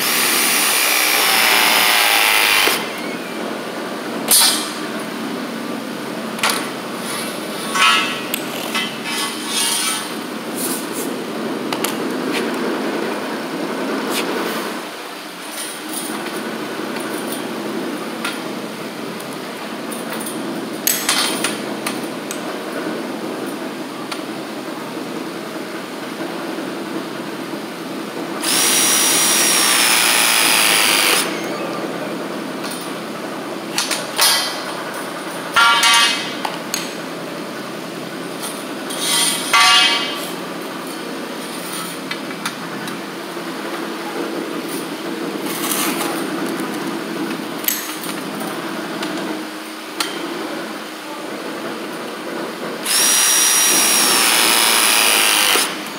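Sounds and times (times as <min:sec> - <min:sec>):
press tool motor whine: 0:00.0 - 0:03.0, 0:28.4 - 0:31.3, 0:52.8 - 0:55.8
steady background noise: 0:00.0 - 0:55.9.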